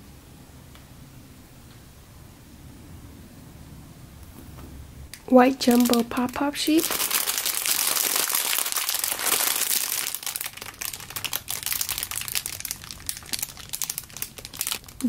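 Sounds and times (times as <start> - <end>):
plastic bag crinkling: 5.2 - 15.0.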